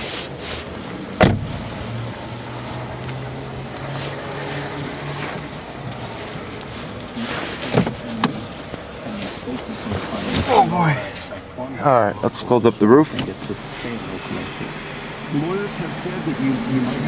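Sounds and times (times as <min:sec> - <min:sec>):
car engine idling: 0:00.0 - 0:17.0
sharp knocks: 0:01.2 - 0:01.6.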